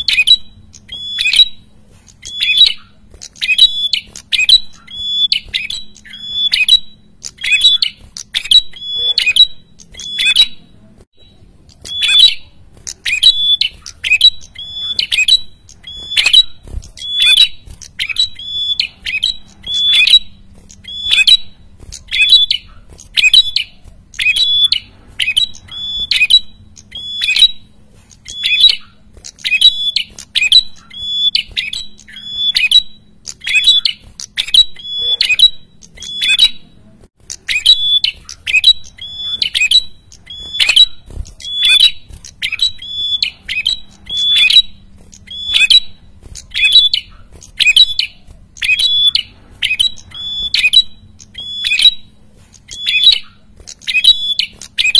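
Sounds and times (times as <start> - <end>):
bird calling sharp hooked notes: 37.2 - 54.9.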